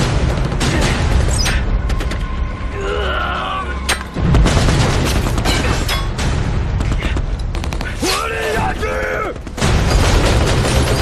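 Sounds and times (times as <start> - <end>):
rumble of gunfire and explosions: 0.0 - 11.0.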